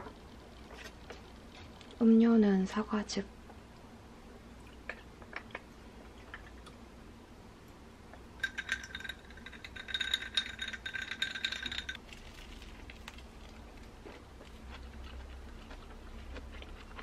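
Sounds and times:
ice cubes rattling in a glass: 8.4s - 12.0s.

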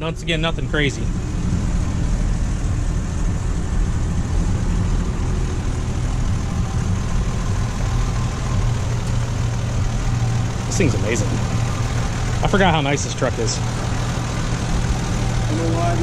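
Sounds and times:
pickup engine idling: 0.0s - 16.0s.

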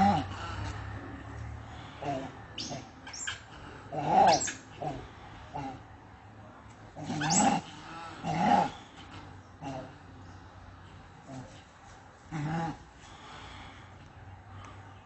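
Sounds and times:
harsh animal calls: 0.0s - 1.0s, 1.6s - 5.9s, 7.0s - 10.1s.

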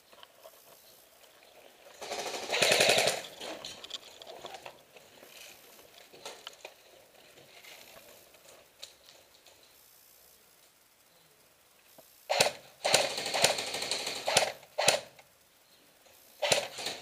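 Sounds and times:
faint clicks and crunches: 0.0s - 9.8s
airsoft gun full-auto burst: 1.9s - 3.4s, 12.2s - 15.2s, 16.3s - 17.0s.

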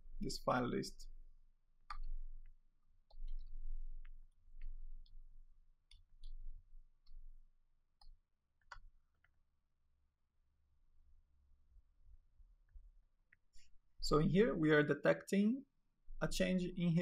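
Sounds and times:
keyboard keys clicking: 3.1s - 5.2s.

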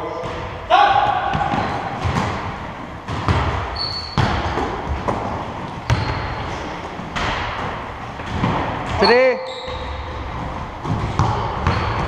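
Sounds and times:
basketball bouncing on court: 0.2s - 12.0s
shoe squeak: 1.5s - 1.9s, 3.7s - 4.4s, 5.8s - 6.9s, 9.0s - 10.1s.

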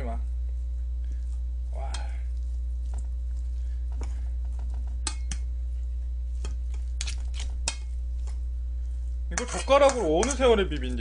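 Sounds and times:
steady low hum: 0.0s - 11.0s
chopsticks clinking in metal bowl: 5.0s - 5.5s, 9.3s - 11.0s.

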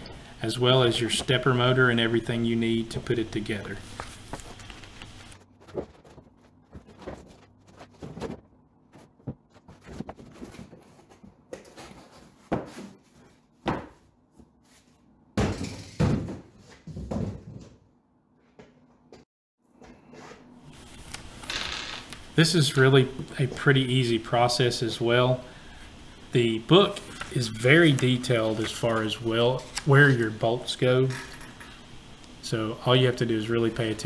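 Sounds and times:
cardboard rustling: 3.6s - 13.4s.

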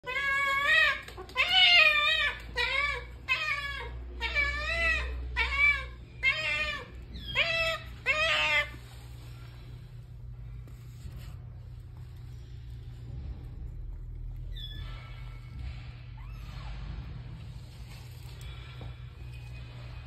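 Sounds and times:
cat meowing: 0.0s - 8.8s.

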